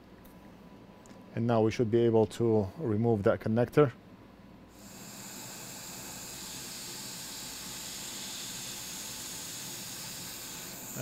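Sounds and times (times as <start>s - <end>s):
hot air station hissing: 4.7s - 11.0s.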